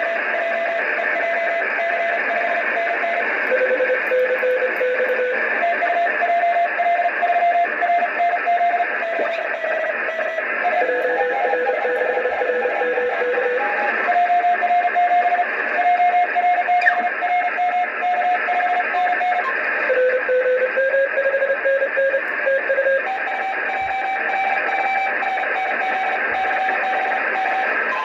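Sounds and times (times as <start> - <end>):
receiver hiss: 0.0 - 28.0
morse code tones: 8.5 - 13.9.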